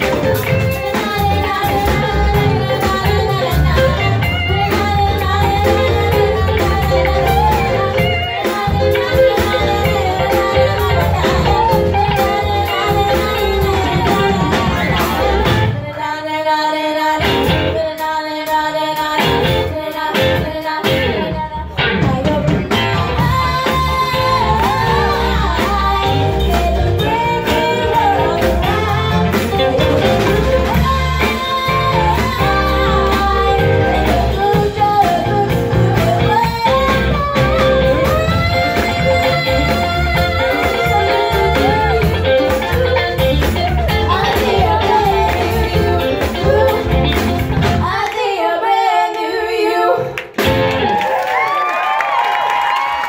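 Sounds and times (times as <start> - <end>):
band with drums and electric guitar: 0.0 - 48.4, 49.8 - 53.0
girls singing a duet: 23.1 - 29.9, 44.1 - 50.2.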